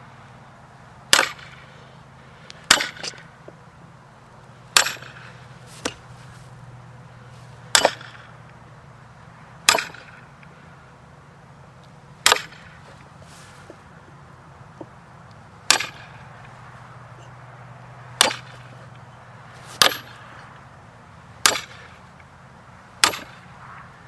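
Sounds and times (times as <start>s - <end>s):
hatchet striking log: 1.1s - 1.6s, 2.7s - 3.2s, 4.7s - 5.2s, 5.8s - 6.0s, 7.7s - 8.2s, 9.6s - 10.2s, 12.2s - 12.7s, 15.7s - 16.2s, 18.2s - 18.7s, 19.7s - 20.2s, 21.4s - 21.9s, 23.0s - 23.4s.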